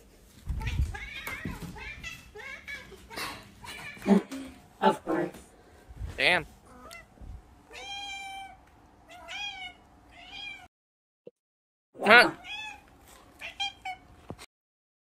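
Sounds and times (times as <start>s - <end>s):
cat meowing: 6.7s - 10.7s, 12.1s - 12.8s, 13.4s - 14.1s.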